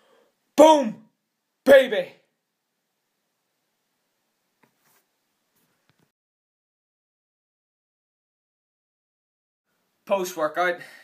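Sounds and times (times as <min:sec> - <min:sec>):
man shouting: 0:00.6 - 0:02.2.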